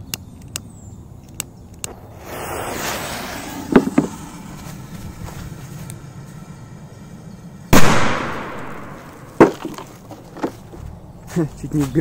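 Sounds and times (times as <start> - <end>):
sharp clicks: 0.0 - 2.0
firecracker fuse hissing: 1.9 - 5.9.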